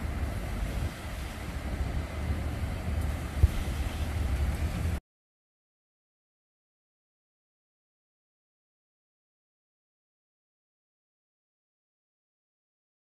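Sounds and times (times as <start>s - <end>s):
wind buffeting microphone: 0.0s - 5.0s.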